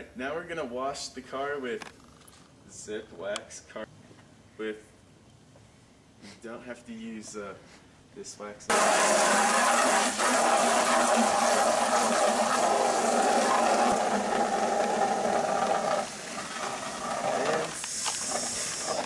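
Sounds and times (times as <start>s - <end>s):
hose water jetting into bucket: 8.7s - 19.0s.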